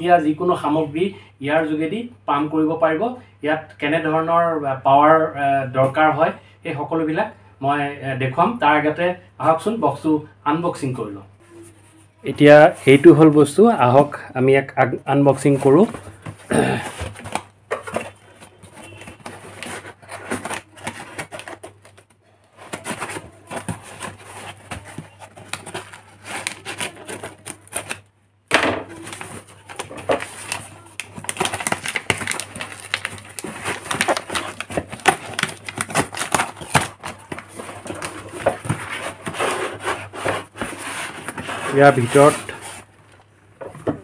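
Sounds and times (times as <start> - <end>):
cardboard box tearing: 22.6 - 28.0, 29.0 - 42.8.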